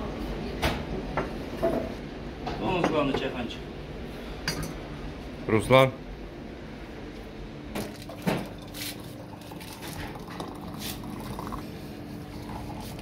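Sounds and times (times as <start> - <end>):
water pouring into teapot: 8.0 - 11.6, 12.2 - 13.0.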